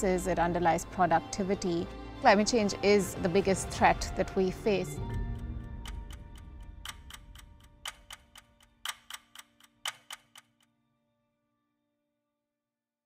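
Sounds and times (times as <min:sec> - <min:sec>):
clock-like ticking: 0:04.9 - 0:10.6.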